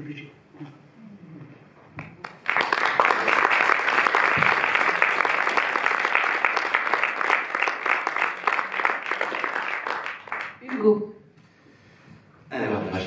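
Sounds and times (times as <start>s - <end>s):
crowd applauding: 2.0s - 10.8s.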